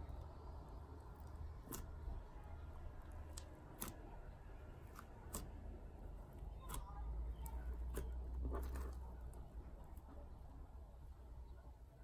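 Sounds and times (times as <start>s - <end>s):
slime clicking and popping: 3.0s - 5.6s.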